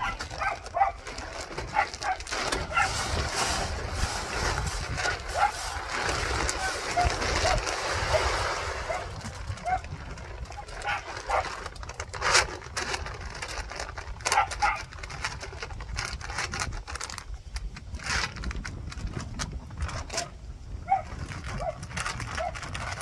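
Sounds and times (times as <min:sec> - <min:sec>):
sack rustling and crinkling: 0:00.0 - 0:20.2, 0:20.9 - 0:23.0
feed pellets poured into metal can: 0:00.1 - 0:14.2.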